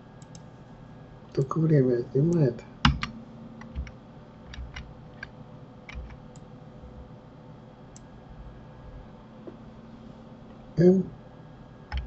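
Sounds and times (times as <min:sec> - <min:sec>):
faint steady hum: 0:00.0 - 0:12.0
mouse and keyboard clicks: 0:05.9 - 0:06.2.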